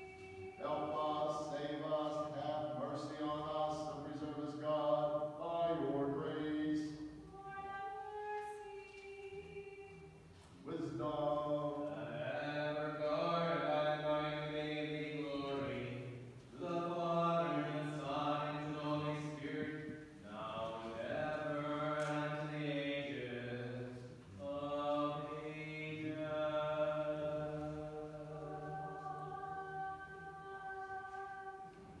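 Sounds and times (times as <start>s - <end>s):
voices chanting long notes: 11.6s - 32.0s.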